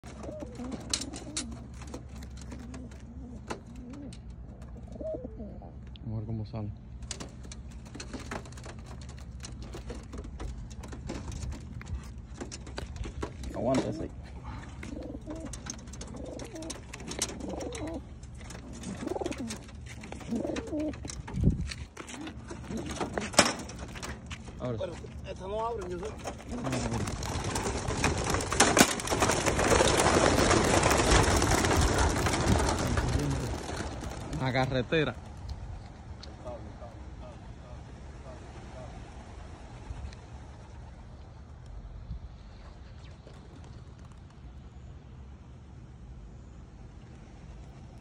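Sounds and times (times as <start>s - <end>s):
pigeons cooing: 0.0s - 6.0s, 12.3s - 24.1s, 26.0s - 34.6s, 36.3s - 41.2s.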